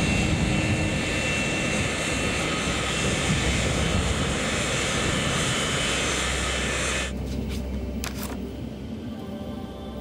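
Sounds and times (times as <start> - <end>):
jet engine roar: 0.0 - 7.2.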